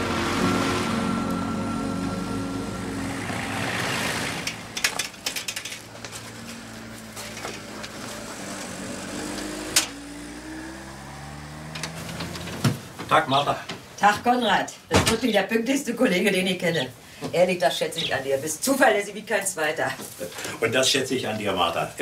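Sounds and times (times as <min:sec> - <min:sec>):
low hum rising in pitch: 0:00.0 - 0:04.8
footsteps crunching on ballast: 0:05.7 - 0:08.3.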